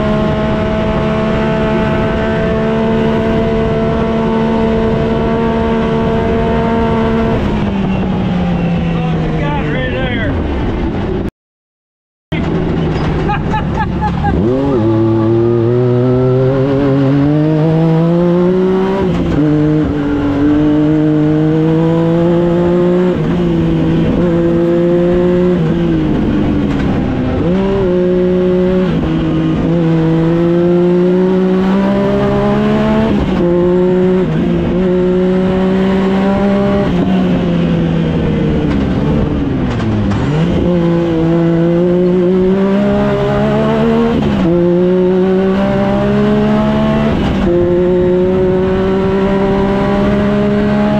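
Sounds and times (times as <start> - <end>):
engine revving hard: 14.2 - 26.5, 27.3 - 38.4, 39.9 - 50.9.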